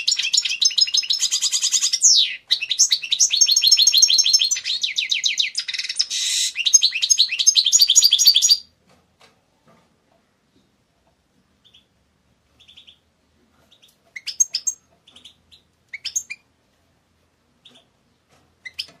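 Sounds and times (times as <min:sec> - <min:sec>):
finch singing twittering trills: 0:00.0 - 0:08.7.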